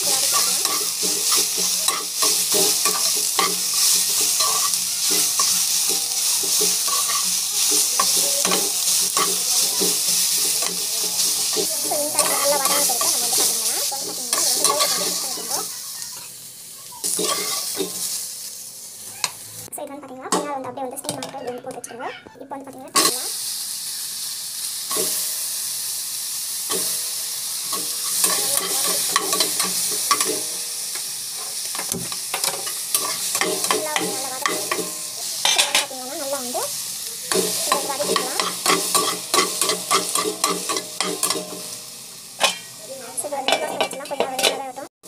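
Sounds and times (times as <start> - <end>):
spatula scraping a pan: 0.0 - 16.3, 17.0 - 18.2, 27.7 - 30.5, 31.4 - 35.9, 37.3 - 41.7, 42.4 - 42.8
tomatoes sizzling in hot oil: 0.0 - 21.8, 22.5 - 45.0.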